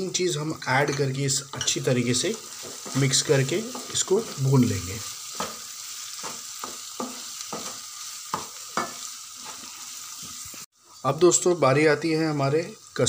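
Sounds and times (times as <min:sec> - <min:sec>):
meat sizzling in oil: 0:00.0 - 0:13.0
wooden spatula scraping pan: 0:02.4 - 0:10.4.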